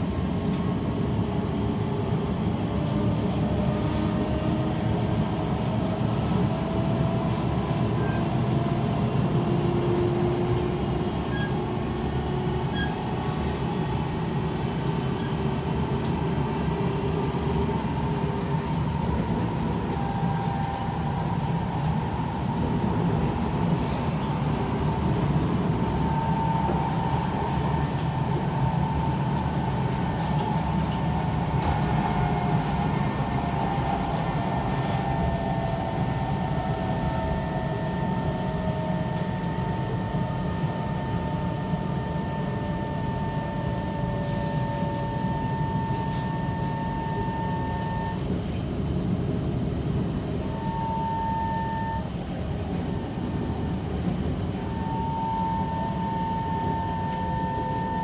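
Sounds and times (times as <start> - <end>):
train wheels rumbling on track: 0.0 - 51.0, 51.9 - 58.0
traction motor whine: 25.9 - 48.2.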